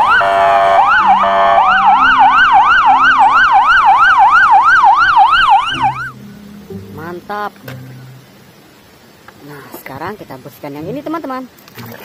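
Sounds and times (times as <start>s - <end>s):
police siren yelping: 0.0s - 6.2s
faint slower siren: 0.0s - 6.7s.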